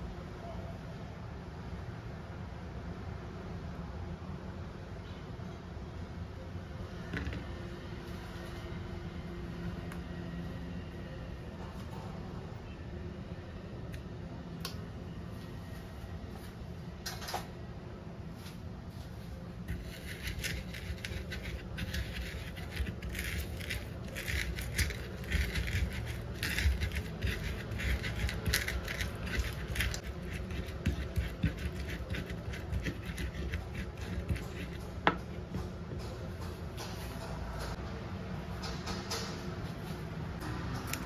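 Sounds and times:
pestle grinding in wooden mortar: 0:19.7 - 0:35.6.

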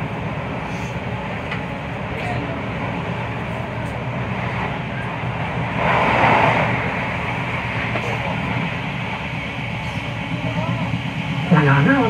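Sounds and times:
rush of noise: 0:00.0 - 0:12.0
train rumble inside carriage: 0:00.0 - 0:12.0.

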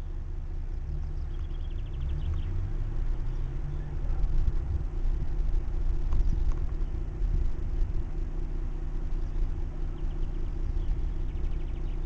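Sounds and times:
car engine hum: 0:00.0 - 0:12.0
road noise: 0:00.0 - 0:12.0.

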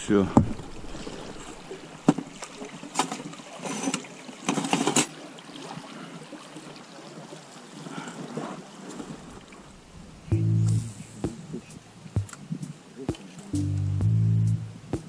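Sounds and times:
river water running over stones: 0:00.0 - 0:10.3.

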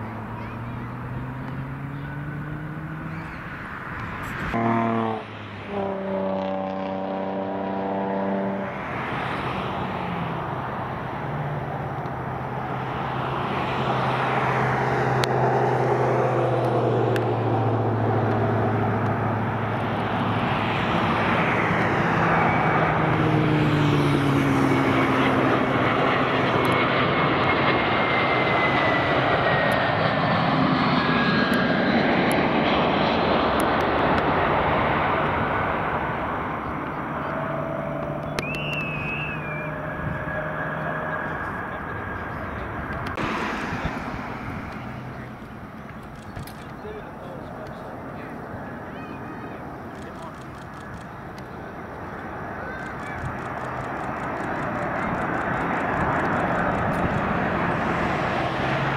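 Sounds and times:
jet engines rumbling: 0:00.0 - 0:58.9
whining tones sliding down: 0:36.5 - 0:46.9.

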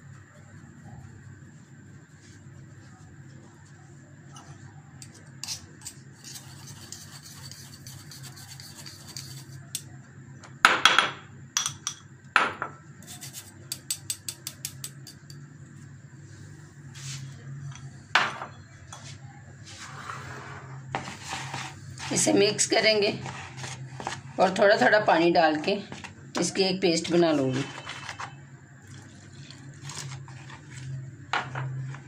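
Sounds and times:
flour rubbing through mesh sieve: 0:16.9 - 0:17.5, 0:19.6 - 0:25.0, 0:27.1 - 0:31.1.

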